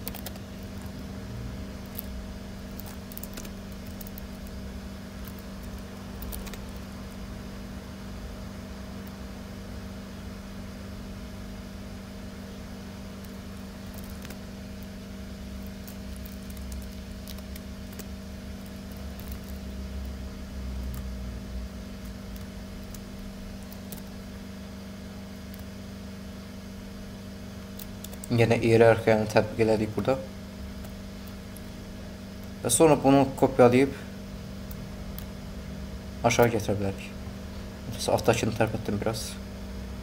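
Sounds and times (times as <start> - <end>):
computer mouse clicks: 0.0 - 0.9, 5.2 - 6.9
electrical hum: 0.0 - 40.0.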